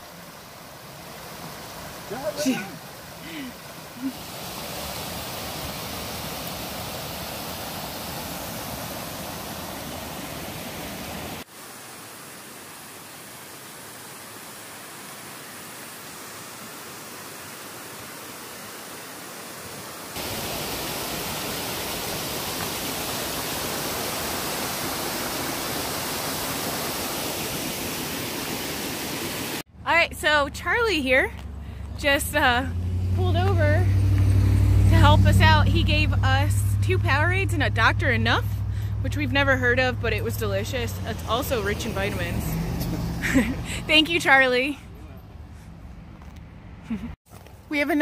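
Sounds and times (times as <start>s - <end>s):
water rushing down cascades: 0.0s - 29.7s.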